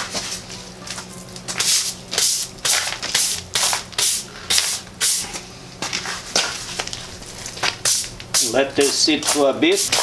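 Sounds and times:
stiff broom scrubbing concrete: 0:07.6 - 0:10.0.

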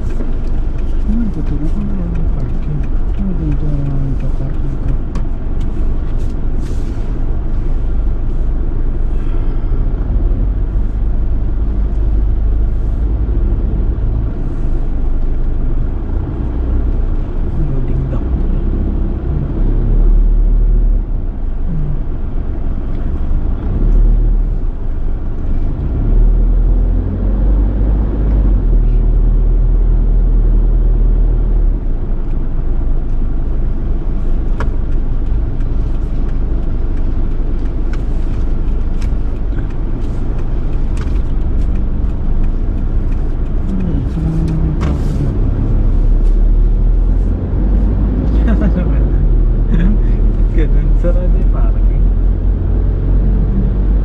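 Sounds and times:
car engine and road rumble: 0:00.0 - 0:54.0.

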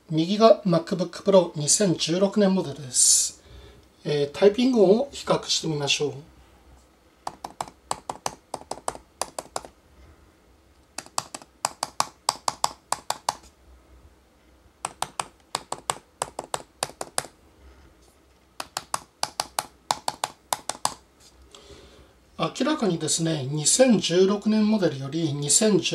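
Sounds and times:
keyboard key clicks: 0:07.3 - 0:09.7, 0:11.0 - 0:13.5, 0:14.8 - 0:17.3.

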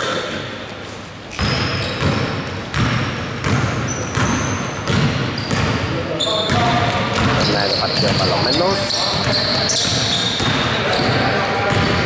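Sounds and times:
shoes squeaking on court: 0:00.8 - 0:12.0
basketball bouncing on wooden floor: 0:01.4 - 0:05.8, 0:09.1 - 0:12.0.

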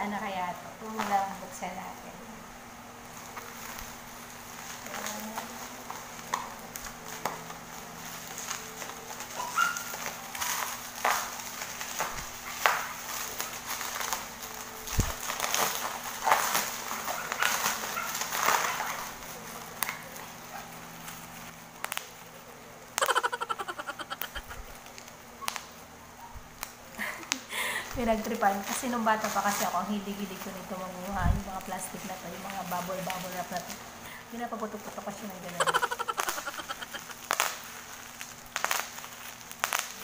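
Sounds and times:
sharp bubble wrap crackles: 0:00.0 - 0:02.2, 0:03.0 - 0:40.0
plastic and bubble wrap crinkling: 0:00.0 - 0:40.0.

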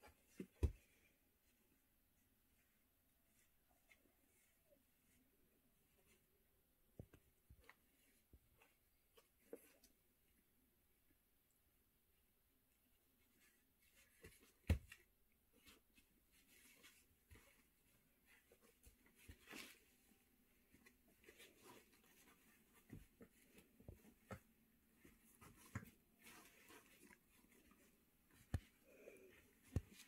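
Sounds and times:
puppy rustling on pads: 0:13.3 - 0:30.0.

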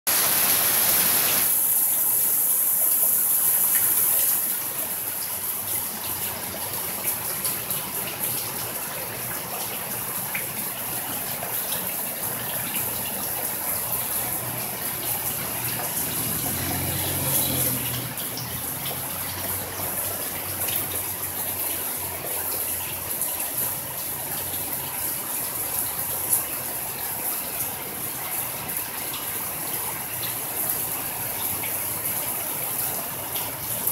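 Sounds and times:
heavy rain pouring: 0:00.1 - 0:33.9.

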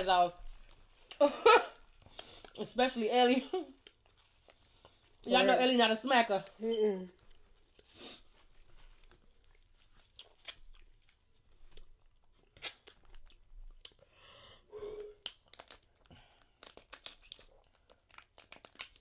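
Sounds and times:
chewing and smacking: 0:03.3 - 0:05.3, 0:07.2 - 0:14.1, 0:15.2 - 0:19.0.

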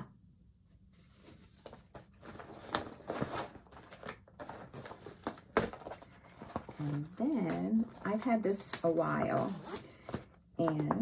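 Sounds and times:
fabric and packaging crinkling: 0:01.1 - 0:10.8.

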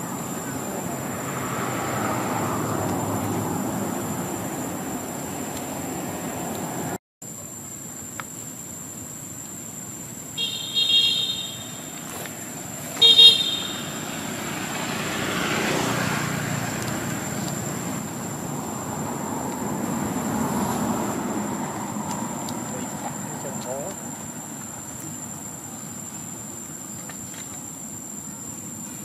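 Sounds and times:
road traffic: 0:00.0 - 0:07.0, 0:07.8 - 0:29.0
vehicle horn blasts: 0:10.4 - 0:12.2, 0:12.8 - 0:14.6.

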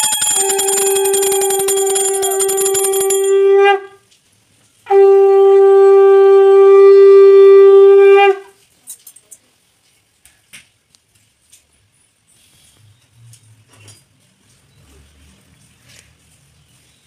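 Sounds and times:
small hand bell ringing: 0:00.0 - 0:03.5
conch shell blown: 0:00.0 - 0:04.1, 0:04.8 - 0:08.6.

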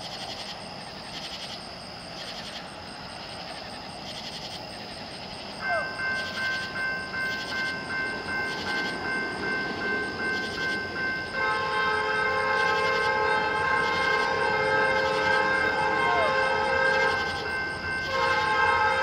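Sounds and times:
bell ringing: 0:05.2 - 0:19.0
locomotive air horn chord: 0:11.3 - 0:19.0.

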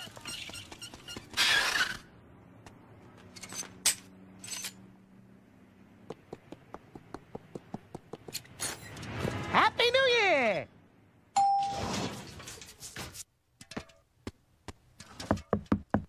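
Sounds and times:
cartoon footsteps: 0:06.0 - 0:08.6.

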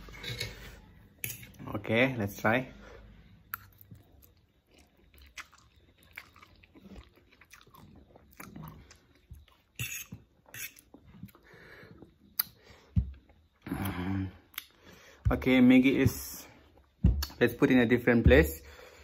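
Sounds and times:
chewing and slurping noodles: 0:03.5 - 0:12.6.

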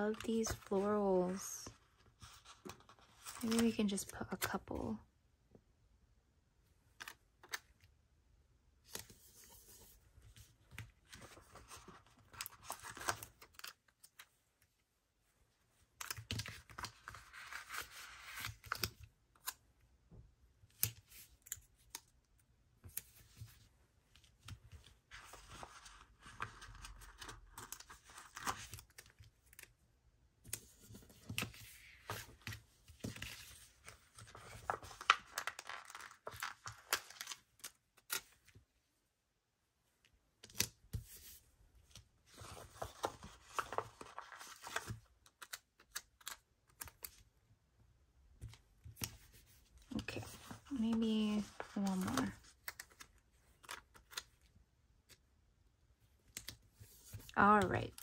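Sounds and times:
paper rustling: 0:08.9 - 0:14.3, 0:22.8 - 0:29.7, 0:30.5 - 0:38.4, 0:40.6 - 0:47.2, 0:48.5 - 0:54.3.

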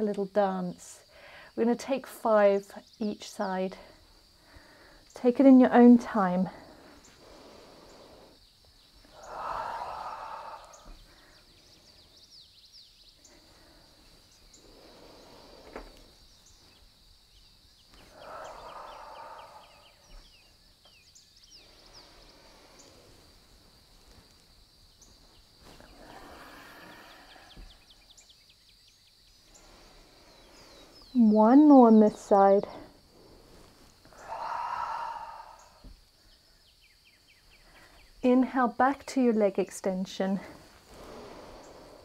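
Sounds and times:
slow throat breathing: 0:06.6 - 0:12.0, 0:13.2 - 0:16.2, 0:18.0 - 0:20.5, 0:21.5 - 0:23.4, 0:25.7 - 0:28.1, 0:32.8 - 0:36.6, 0:40.6 - 0:42.0.

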